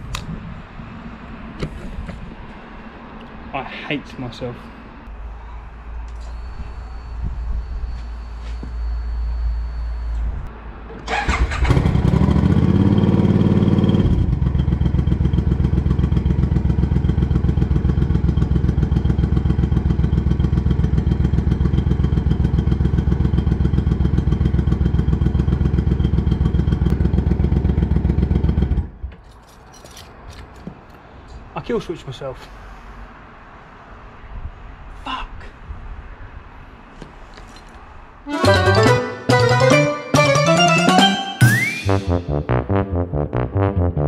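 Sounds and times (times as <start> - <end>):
motorcycle starter cranking: 11.1 - 12.0
motorcycle engine idling: 14.3 - 28.7.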